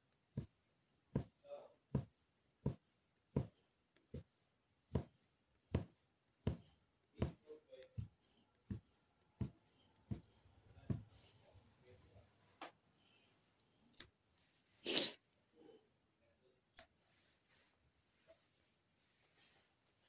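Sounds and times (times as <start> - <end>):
punch needle thumping through fabric: 0.3 - 11.2.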